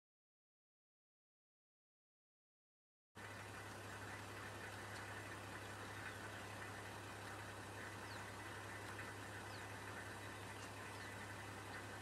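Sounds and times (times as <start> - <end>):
vehicle engine idling: 3.2 - 12.0.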